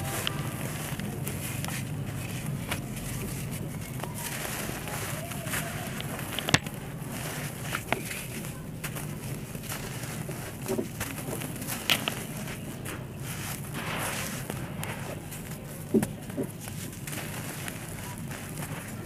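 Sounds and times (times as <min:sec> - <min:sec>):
sand crumbling by hand: 0:00.0 - 0:19.0
sharp crack: 0:11.0 - 0:18.9.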